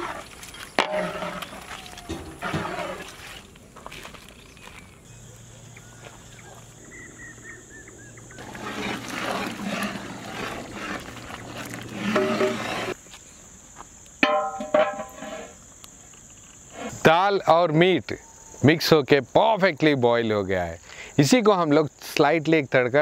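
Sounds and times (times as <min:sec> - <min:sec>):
stew bubbling in a pot: 0:08.4 - 0:13.0
steel pot lid clanging: 0:14.2 - 0:15.2.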